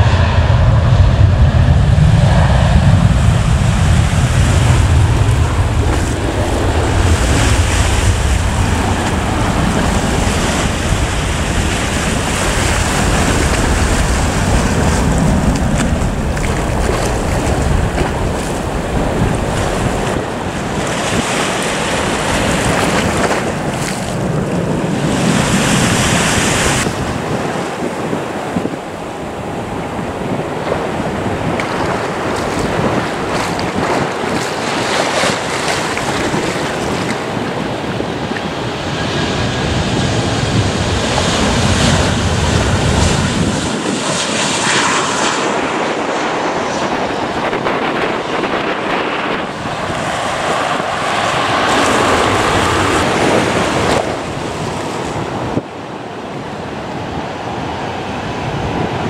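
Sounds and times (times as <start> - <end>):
low rumble: 0.0 - 20.8
wind buffeting microphone: 0.0 - 59.0.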